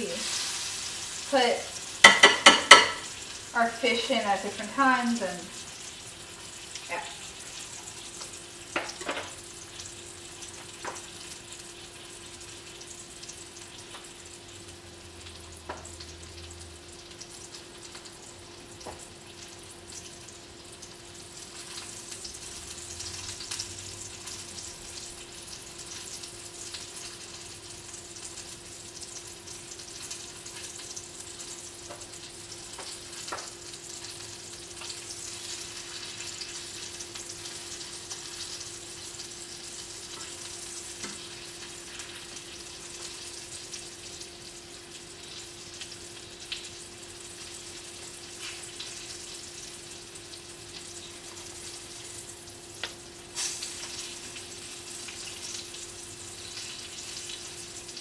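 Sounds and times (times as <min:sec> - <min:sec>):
fish sizzling in a pan: 0:00.0 - 0:58.0
utensil tapping pan: 0:02.0 - 0:03.1.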